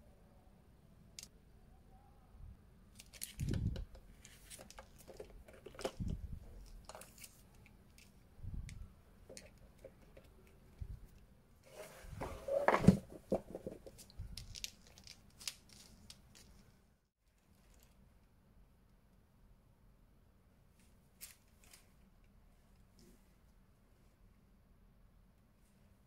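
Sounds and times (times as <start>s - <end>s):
earphone cable rustling: 2.9s - 16.8s.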